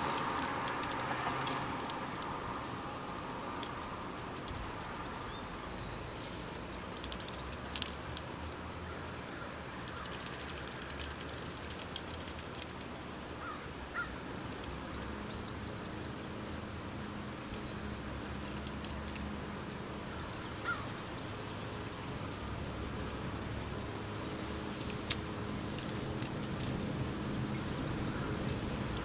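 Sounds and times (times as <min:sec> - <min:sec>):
faint clicks: 0:00.0 - 0:05.1, 0:06.9 - 0:08.6, 0:09.8 - 0:13.1, 0:17.5 - 0:19.4, 0:24.7 - 0:29.0
outdoor background noise: 0:00.0 - 0:29.0.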